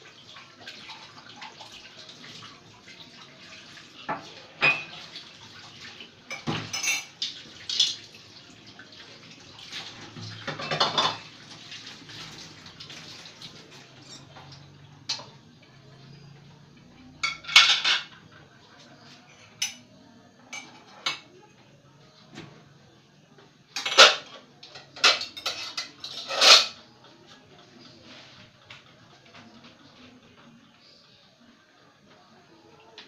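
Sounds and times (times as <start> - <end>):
dishes and cutlery clattering: 4.0 - 8.3, 9.6 - 15.5, 17.0 - 18.4, 19.0 - 21.4, 23.7 - 26.9.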